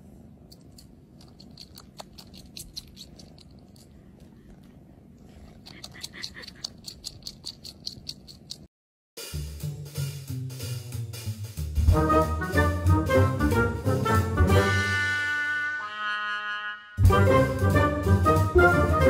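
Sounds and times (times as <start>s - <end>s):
rapid sucking clicks: 0.5s - 8.7s
cat purring: 1.3s - 7.8s
music: 9.2s - 19.0s.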